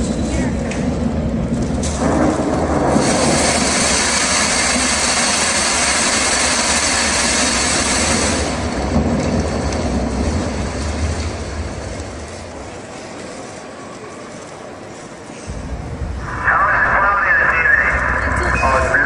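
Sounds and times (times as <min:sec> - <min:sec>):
low rumble: 0:00.0 - 0:12.8, 0:15.5 - 0:19.0
heavy rain rushing: 0:00.0 - 0:13.4, 0:15.5 - 0:19.0.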